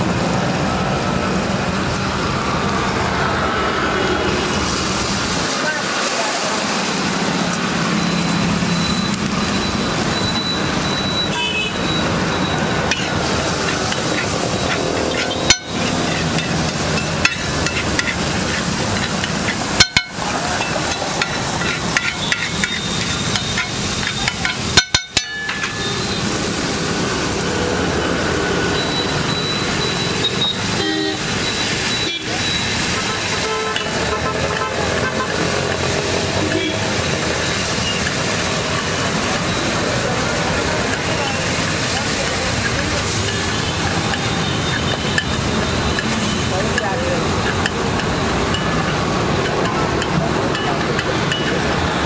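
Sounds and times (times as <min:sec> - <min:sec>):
sauce frying in oil: 0:00.1 - 0:52.0
metal spatula scraping griddle: 0:12.8 - 0:26.1
spatula clanking on griddle: 0:12.8 - 0:26.1, 0:40.8 - 0:51.6.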